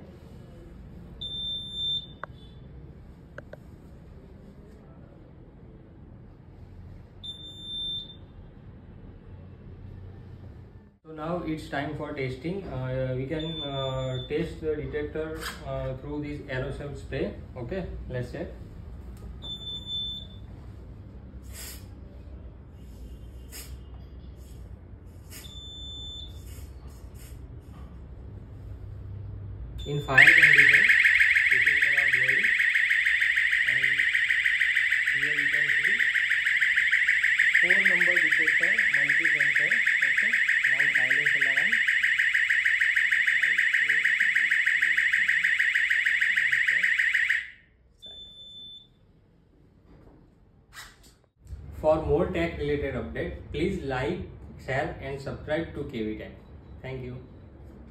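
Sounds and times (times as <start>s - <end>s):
fire alarm pulsing high tone: 1.2s - 2.5s, 7.2s - 8.2s, 13.4s - 14.4s, 19.4s - 20.4s, 29.8s - 48.9s
smoke detector beep: 1.2s - 2.5s, 7.2s - 8.3s, 13.4s - 14.5s, 19.4s - 20.5s, 25.4s - 26.5s, 29.8s - 48.9s
faint short beep: 48.0s - 49.0s.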